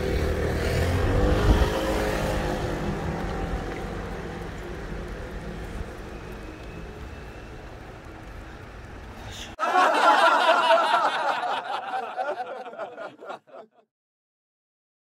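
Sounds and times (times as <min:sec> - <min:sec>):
laughter sound effect: 0:09.6 - 0:13.8.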